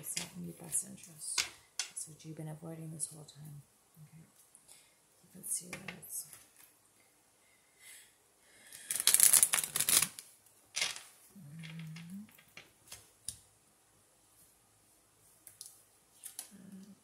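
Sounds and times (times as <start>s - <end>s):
cards being shuffled: 8.9s - 11.1s.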